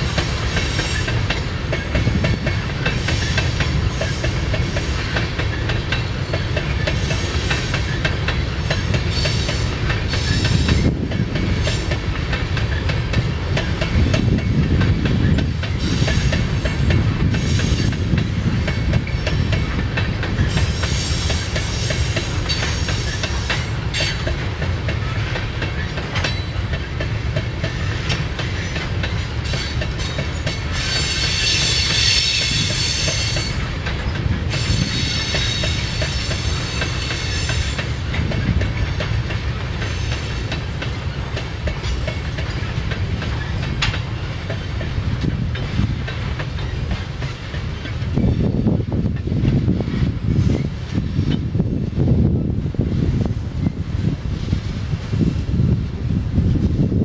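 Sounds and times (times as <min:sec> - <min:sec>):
wheels clicking over rail joints: 0:00.0 - 0:51.5
train wheels rumbling on rails: 0:00.0 - 0:57.0
high wheel squeal: 0:29.4 - 0:33.7, 0:34.5 - 0:37.8.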